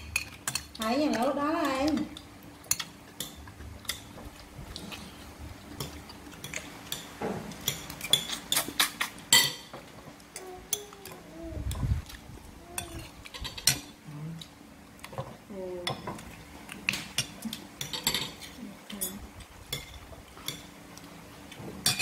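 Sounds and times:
cutlery clinking on ceramic plates: 0:09.3 - 0:09.8, 0:17.1 - 0:19.2, 0:21.8 - 0:22.0.

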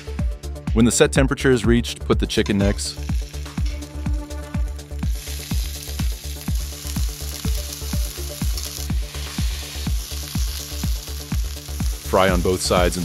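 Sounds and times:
background music with steady beat: 0:00.0 - 0:13.0
meat sizzling in hot oil: 0:03.0 - 0:04.1, 0:04.8 - 0:13.0.

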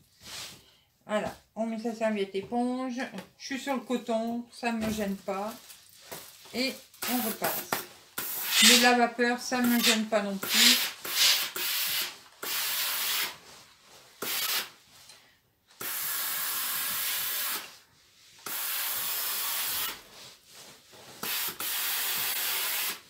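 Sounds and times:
steam iron hissing: 0:08.2 - 0:08.9, 0:09.8 - 0:13.4, 0:14.2 - 0:14.7, 0:15.8 - 0:17.7, 0:18.4 - 0:20.0, 0:21.2 - 0:23.0.

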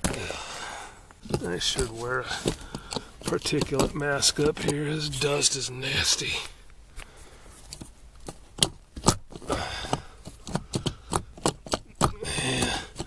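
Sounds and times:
hands rustling through insulation: 0:00.0 - 0:13.0
sharp clicks and taps: 0:01.2 - 0:04.8, 0:07.7 - 0:13.0.

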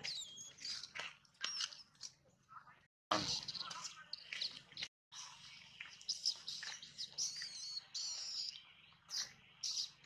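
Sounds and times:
monkey squeaks and chirps: 0:00.0 - 0:02.1, 0:06.0 - 0:10.0.

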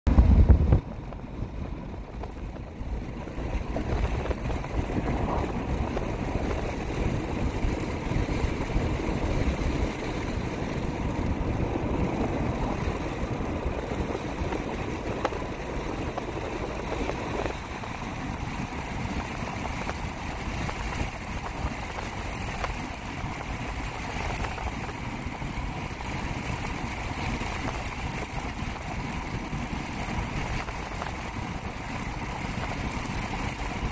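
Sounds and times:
car engine and road rumble: 0:00.1 - 0:33.9.

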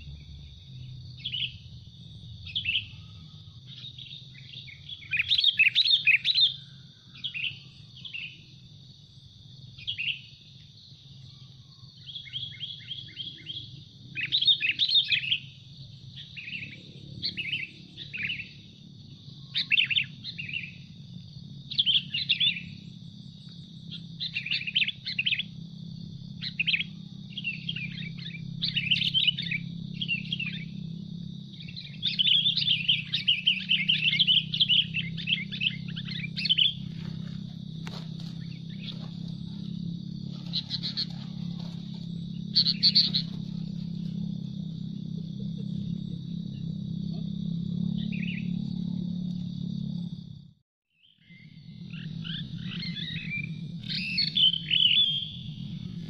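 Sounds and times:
bulbuls chattering chirps: 0:12.0 - 0:18.8, 0:19.4 - 0:21.0, 0:21.7 - 0:48.8, 0:51.9 - 0:56.0.

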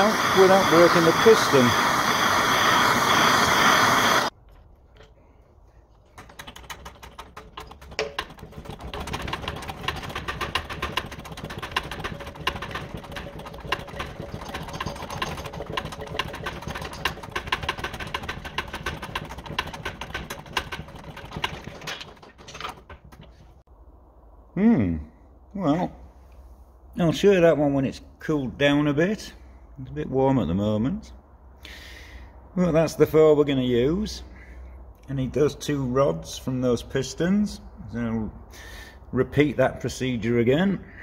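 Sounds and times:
heat gun whine: 0:00.0 - 0:04.4
mechanical clicking and ticking: 0:06.1 - 0:23.4.

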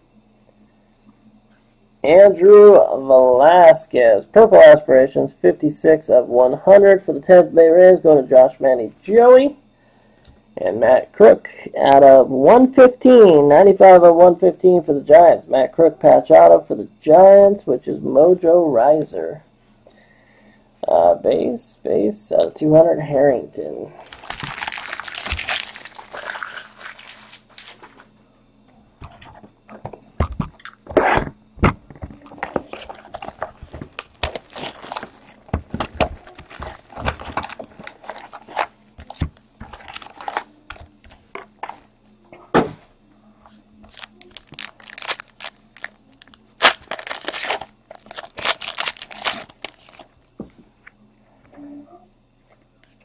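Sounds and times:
wrappers crinkling and tearing: 0:24.0 - 0:28.1, 0:32.2 - 0:40.8, 0:43.9 - 0:50.2
cards shuffled and set down: 0:29.0 - 0:41.9.

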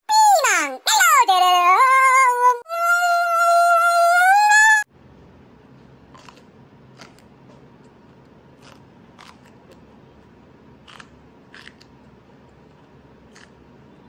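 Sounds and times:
crisp chewing crunches: 0:06.1 - 0:13.7.

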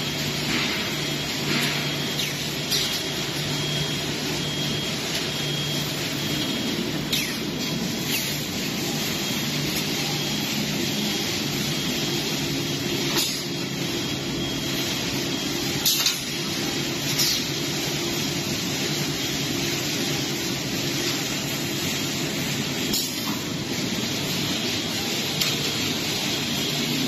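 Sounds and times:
machinery humming: 0:00.0 - 0:27.0.

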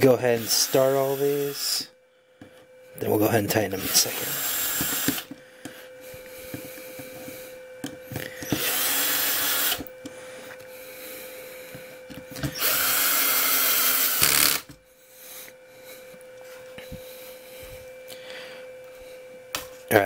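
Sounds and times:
cordless screwdriver running: 0:00.0 - 0:01.8, 0:03.6 - 0:05.3, 0:08.2 - 0:09.9, 0:12.4 - 0:14.7.

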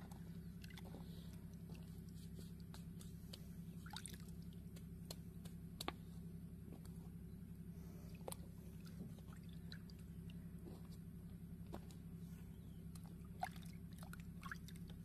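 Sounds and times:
steady low hum: 0:00.0 - 0:15.0
wet squishing and dripping: 0:00.6 - 0:06.0, 0:12.9 - 0:15.0.

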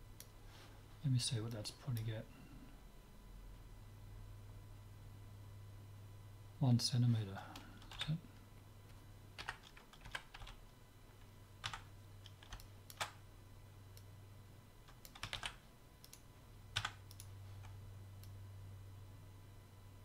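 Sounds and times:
faint low hum: 0:00.0 - 0:20.0
keyboard and mouse clicks: 0:11.6 - 0:13.2.

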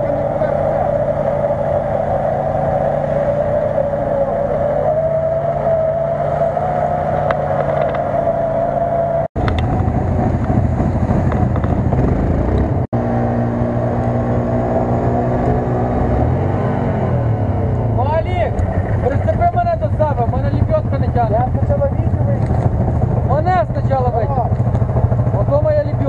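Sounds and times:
quad bike engine humming: 0:00.0 - 0:26.0
rough low engine noise: 0:00.0 - 0:26.0
engine revving hard: 0:10.1 - 0:20.7.

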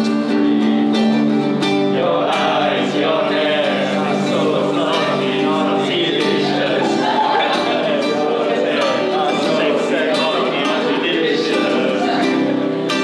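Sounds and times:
acoustic guitar strumming: 0:00.0 - 0:13.0
men singing together: 0:01.8 - 0:13.0.

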